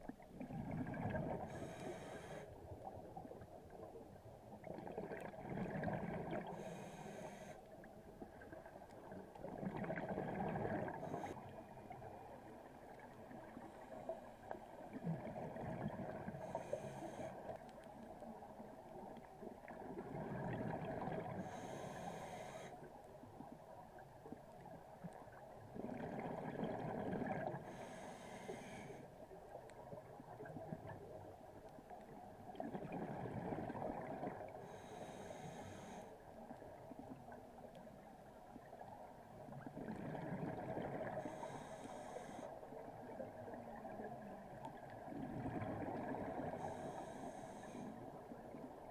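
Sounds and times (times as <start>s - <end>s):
exhaled air bubbling: 0.0s - 1.8s, 4.6s - 6.7s, 9.4s - 11.4s, 19.7s - 21.6s, 25.7s - 27.8s, 32.5s - 34.5s, 39.6s - 41.6s
regulator inhale hiss: 1.5s - 2.6s, 6.5s - 7.7s, 16.4s - 17.6s, 21.4s - 22.9s, 27.6s - 29.1s, 34.6s - 36.2s, 41.2s - 42.8s, 46.4s - 48.2s.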